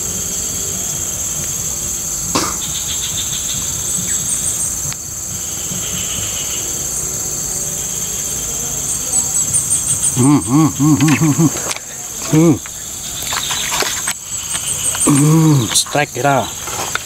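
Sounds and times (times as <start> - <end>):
insects droning: 0.0 - 17.0
quick pitched calls: 8.9 - 17.0.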